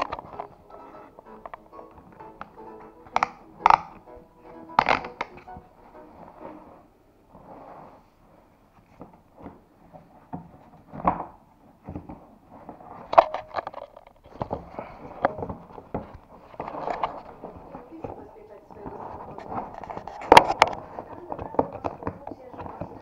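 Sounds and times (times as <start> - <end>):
plastic boot rustling and scraping: 3.6 - 13.2, 14.2 - 23.0.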